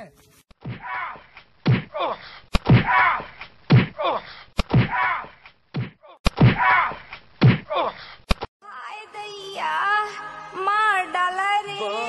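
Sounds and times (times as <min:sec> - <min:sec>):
cry of pain: 0:04.8 - 0:05.3.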